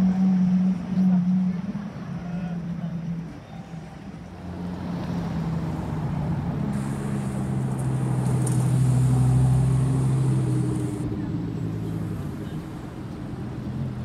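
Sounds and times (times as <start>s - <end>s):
sports car engine pulling away: 4.3s - 14.0s.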